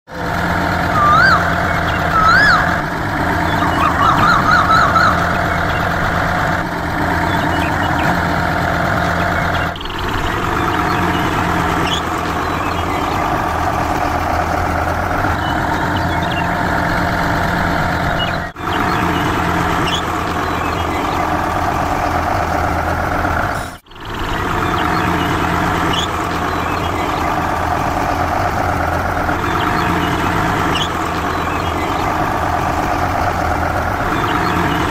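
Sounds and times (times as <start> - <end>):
truck engine drone: 0.0 - 34.9
whistle-like warbling tones: 0.2 - 8.3, 9.0 - 14.0, 29.4 - 32.6.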